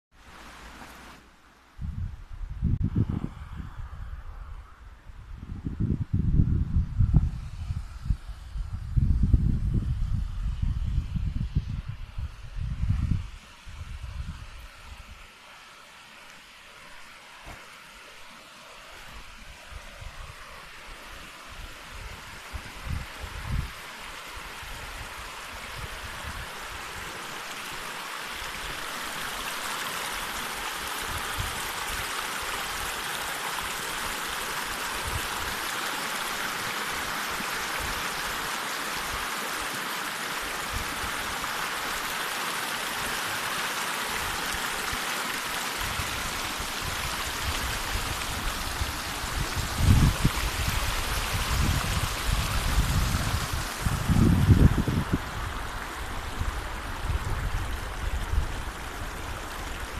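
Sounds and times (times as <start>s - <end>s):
river rushing over stones: 0.2s - 1.7s, 14.8s - 59.9s
low rumbles on microphone: 1.8s - 14.5s.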